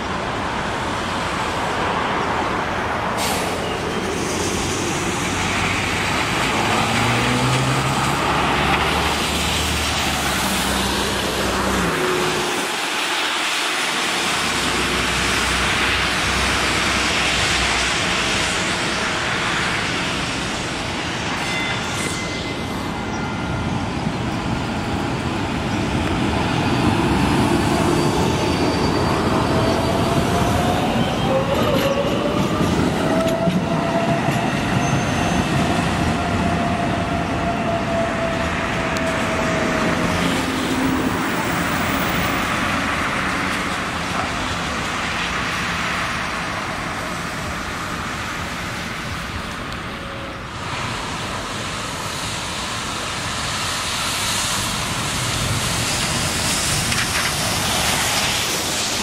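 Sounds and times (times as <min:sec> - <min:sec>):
wheels rumbling on rail: 0:00.0 - 0:59.0
high-pitched whine: 0:11.8 - 0:43.2.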